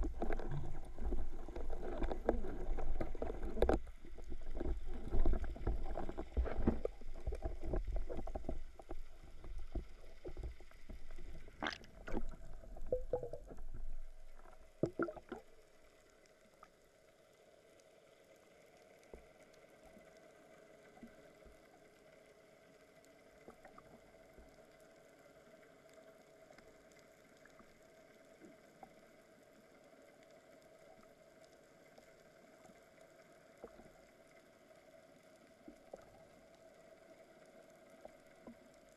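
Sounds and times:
water rushing against camera housing: 0.0 - 15.4
faint underwater hum: 0.0 - 38.9.

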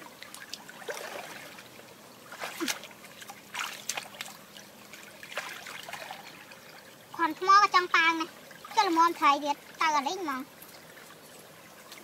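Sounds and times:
water trickling: 0.0 - 12.0
hand splashing in stream: 2.3 - 4.4.

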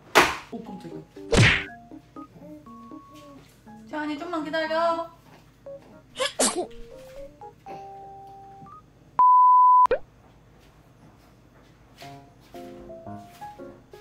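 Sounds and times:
held electronic tones: 8.0 - 10.0
high-pitched beep: 8.7 - 10.0.

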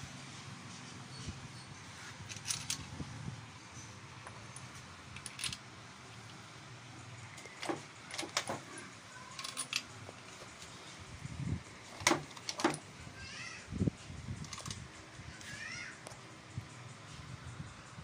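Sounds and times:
metal clinks of engine parts: 1.1 - 3.1, 3.7 - 6.4, 7.1 - 11.0, 11.8 - 13.0, 13.9 - 17.1.

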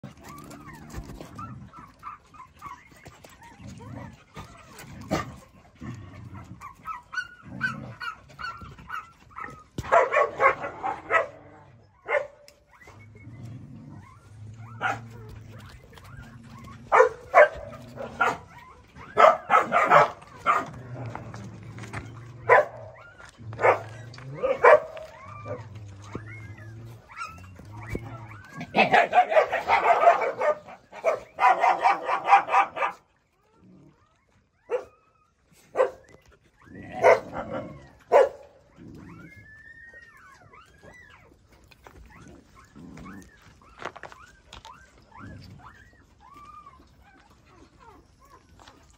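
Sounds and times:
puppy whining and yelping: 0.0 - 48.9.

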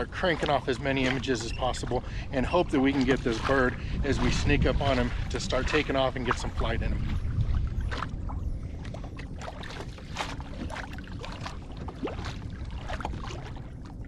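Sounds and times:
low steady rumble: 0.0 - 14.0
waves lapping against kayak hull: 0.0 - 14.0.

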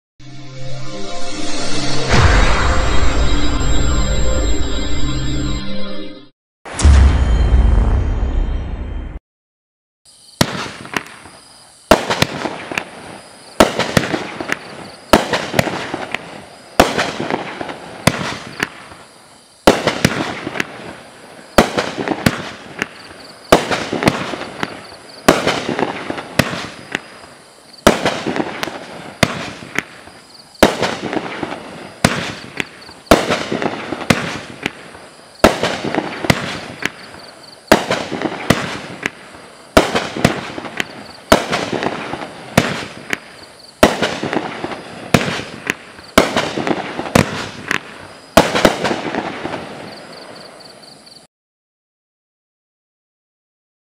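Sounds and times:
fireworks cake bangs: 10.4 - 13.0, 13.6 - 49.9.

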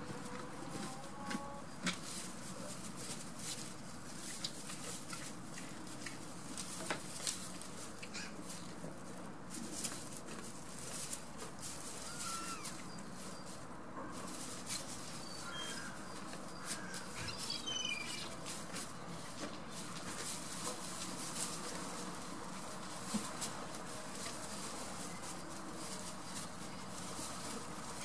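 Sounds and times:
goats stepping on straw: 0.0 - 28.0
small birds chirping: 15.0 - 19.2.

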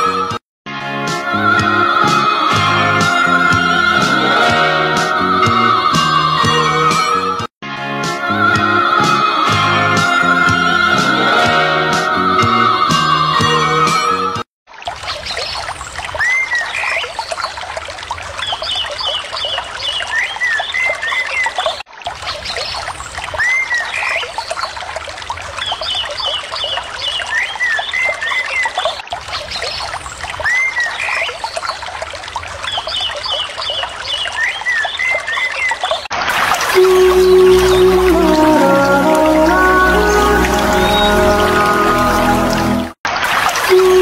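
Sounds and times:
stream trickling over stones: 14.7 - 44.0.

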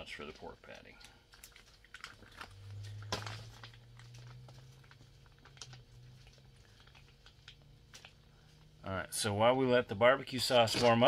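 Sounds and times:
plastic pouches crinkling and clicking: 0.0 - 8.8
low steady hum: 0.0 - 11.0.

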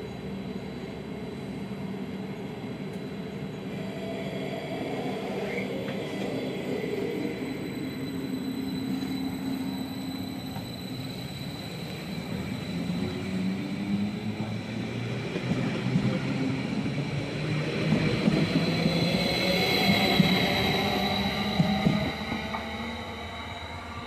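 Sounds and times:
electric train high whine: 0.0 - 24.0
train wheels rumbling on rails: 0.0 - 24.0.

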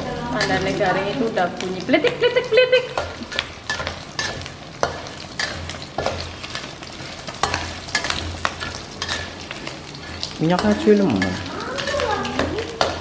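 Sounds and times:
insects frying in oil crackling: 0.0 - 13.0
metal spatula scraping wok: 2.9 - 13.0.

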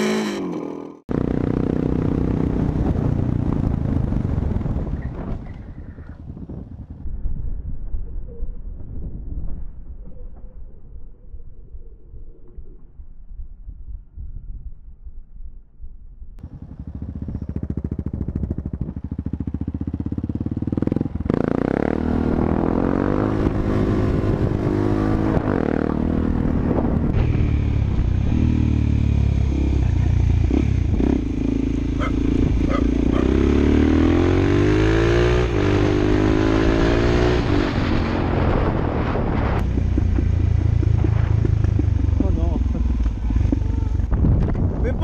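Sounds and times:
motorcycle engine accelerating: 0.0 - 7.0, 16.4 - 45.0.

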